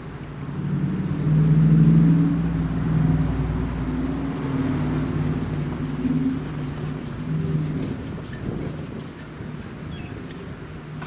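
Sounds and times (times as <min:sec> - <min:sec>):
engine humming: 0:00.0 - 0:11.0
deep rumble: 0:00.5 - 0:08.9.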